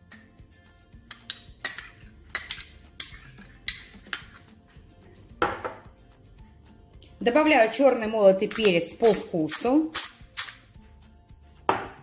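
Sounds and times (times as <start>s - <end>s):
metal spoon scraping glass bowl: 1.2s - 4.6s.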